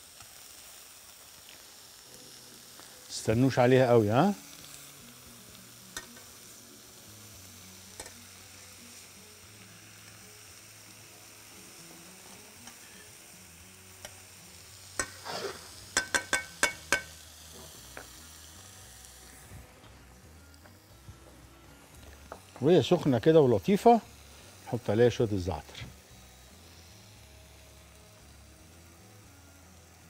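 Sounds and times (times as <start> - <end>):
cheese sizzling in a frying pan: 0.0 - 30.0
metal tongs clacking: 8.0 - 8.2, 15.0 - 15.4, 16.0 - 17.2.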